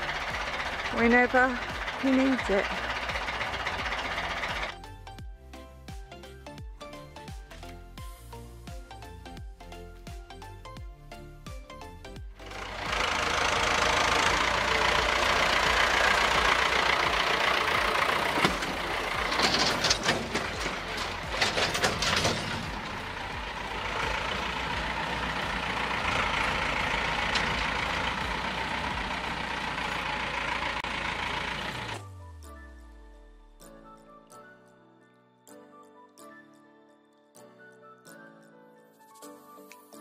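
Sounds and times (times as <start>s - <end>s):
tractor engine running: 0.0s - 5.2s, 11.7s - 32.0s
clattering: 12.7s - 30.9s.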